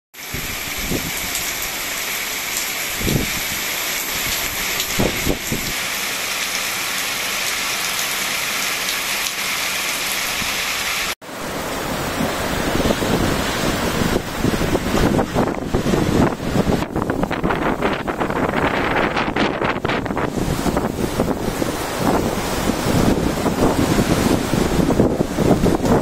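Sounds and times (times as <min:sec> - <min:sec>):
heavy rain on pavement: 0:00.1 - 0:26.0
wind buffeting microphone: 0:00.3 - 0:01.6, 0:02.9 - 0:05.8, 0:11.6 - 0:26.0.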